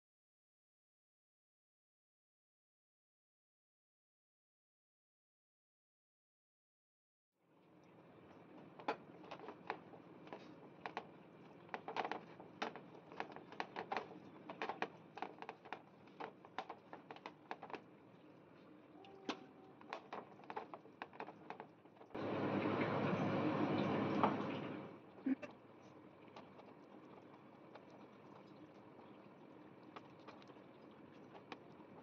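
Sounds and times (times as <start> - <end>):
faint steady hum: 7.4 - 32.0
fingers squelching wet paste: 8.6 - 22.2, 26.2 - 32.0.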